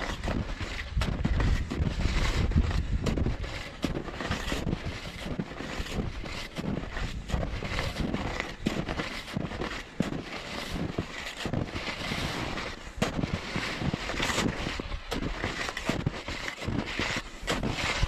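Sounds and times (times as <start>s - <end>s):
wind buffeting microphone: 0.0s - 5.2s
skis crunching over snow: 0.0s - 18.0s.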